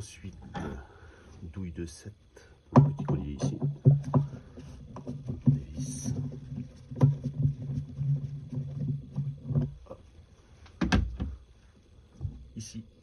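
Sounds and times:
rubber hose creaking: 0:02.7 - 0:11.5.

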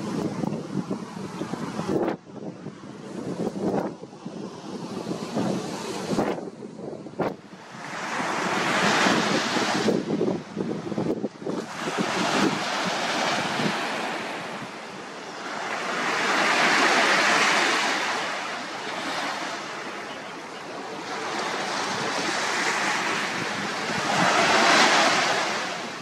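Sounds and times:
waves breaking on sandy beach: 0:00.0 - 0:26.0.

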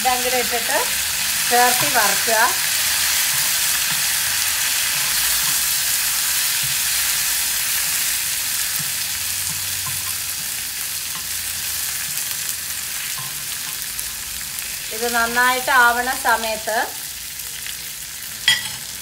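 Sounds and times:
leaves sizzling in hot oil: 0:00.0 - 0:19.0
spoon knocking on pan: 0:01.7 - 0:02.3, 0:06.6 - 0:07.1, 0:08.7 - 0:11.3.

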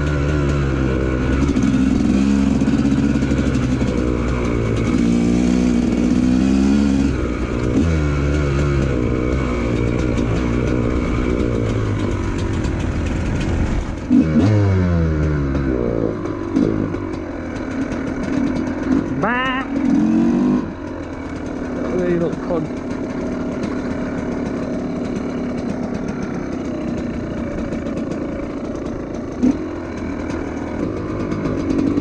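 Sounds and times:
motorcycle engine revving: 0:00.0 - 0:32.0.

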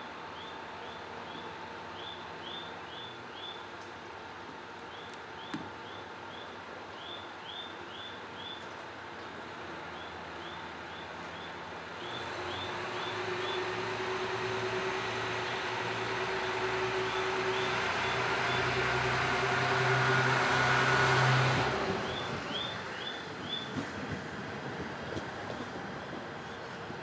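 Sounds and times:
diesel railcar engine throttling up: 0:08.3 - 0:27.0.

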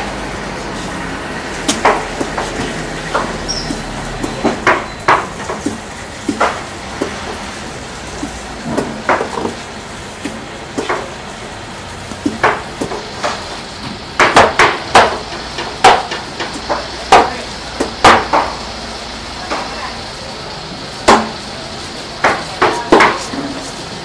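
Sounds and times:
knife chopping fish: 0:01.7 - 0:07.4.

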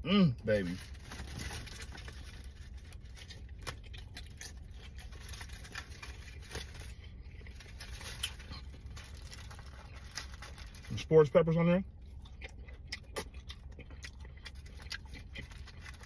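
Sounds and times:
steady low hum: 0:00.0 - 0:16.0
wrapper rustling: 0:00.7 - 0:03.4, 0:04.3 - 0:06.9, 0:07.5 - 0:11.0
man chewing: 0:01.2 - 0:10.9, 0:11.9 - 0:16.0.

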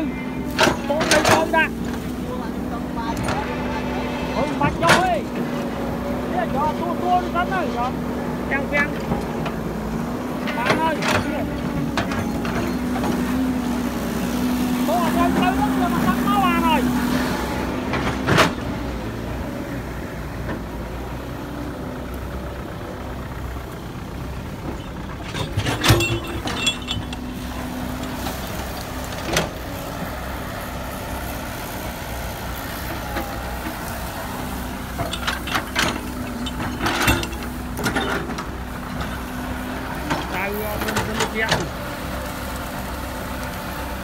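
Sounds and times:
excavator diesel engine running: 0:00.0 - 0:44.0
sharp metal clanks and knocks: 0:24.7 - 0:28.3, 0:34.9 - 0:38.5.

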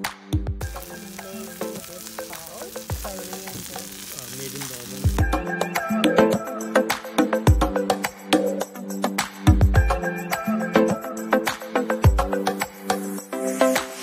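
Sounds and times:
background music with percussion: 0:00.0 - 0:14.0
hot stone bowl sizzling: 0:00.6 - 0:05.9.

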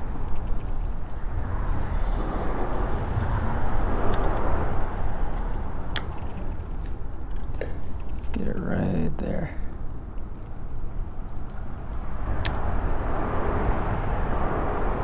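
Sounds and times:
low outdoor rumble: 0:00.0 - 0:15.0
sharp click: 0:12.4 - 0:12.6.

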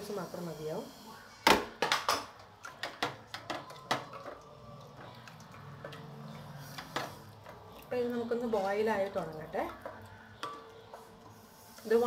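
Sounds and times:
spatula stirring in pot: 0:02.6 - 0:12.0.

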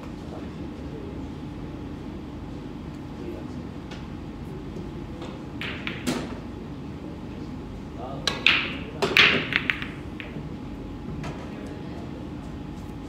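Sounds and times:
pool balls clicking: 0:05.6 - 0:06.4, 0:08.2 - 0:10.6
cue striking ball: 0:05.6 - 0:06.5, 0:08.3 - 0:10.6.

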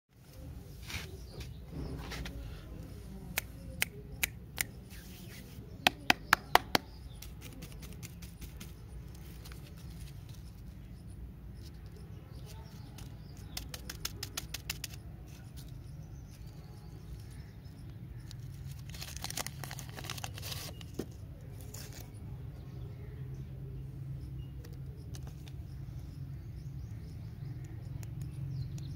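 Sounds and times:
candy wrapper crinkling: 0:18.3 - 0:21.0.

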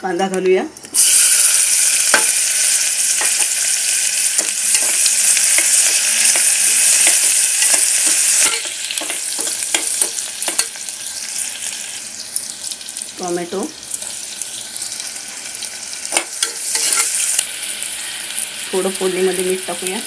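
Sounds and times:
onion sizzling in hot oil: 0:00.1 - 0:20.0
metal spoon scraping a pot: 0:16.4 - 0:17.2.

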